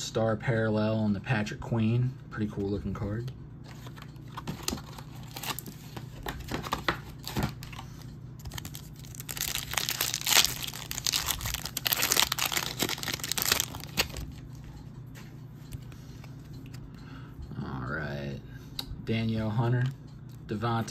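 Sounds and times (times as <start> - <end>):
foil wrapper crinkling and tearing: 4.6 - 5.8, 8.4 - 14.4.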